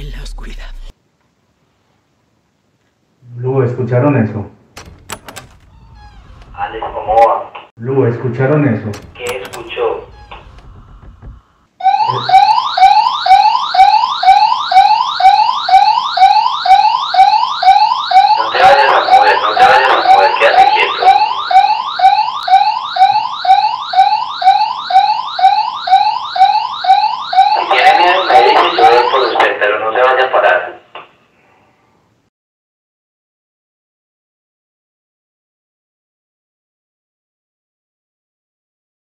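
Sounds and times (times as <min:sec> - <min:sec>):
electronic alarm siren: 0:05.7 - 0:06.9, 0:09.3 - 0:29.4.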